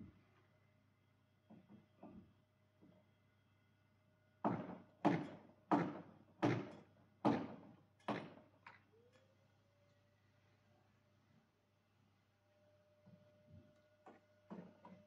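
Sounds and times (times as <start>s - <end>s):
hammer striking wooden door: 4.4s - 8.4s.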